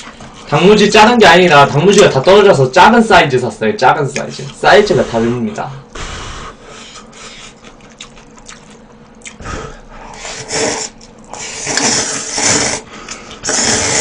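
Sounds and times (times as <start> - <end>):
person slurping noodles: 9.3 - 14.0.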